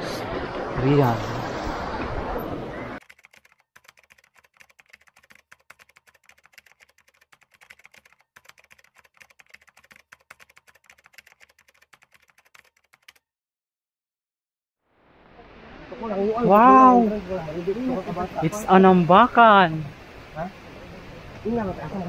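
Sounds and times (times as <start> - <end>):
keyboard key clicks: 3.0 - 13.2.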